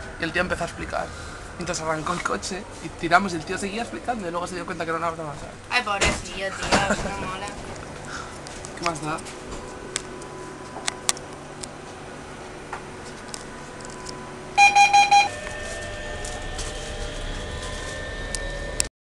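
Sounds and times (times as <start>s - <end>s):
traction motors whining: 0.0s - 18.9s
train hum: 0.0s - 18.9s
door-closing warning beeps: 14.6s - 18.6s.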